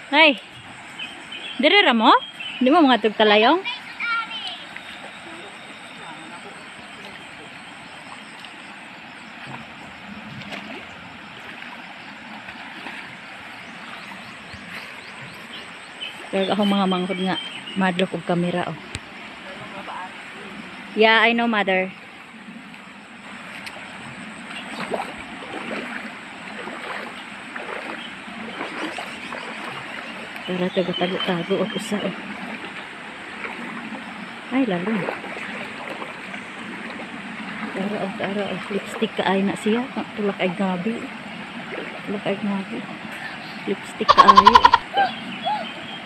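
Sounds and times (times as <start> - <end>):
splashes from wading: 0.0 - 17.8, 22.1 - 46.0
river water rushing over rocks: 22.2 - 30.5.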